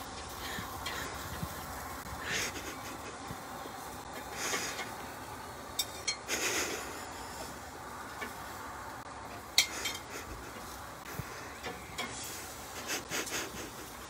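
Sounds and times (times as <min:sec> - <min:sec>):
metal tongs clinking on grill: 0:05.7 - 0:06.3, 0:08.1 - 0:08.5, 0:09.3 - 0:10.8, 0:11.6 - 0:12.6.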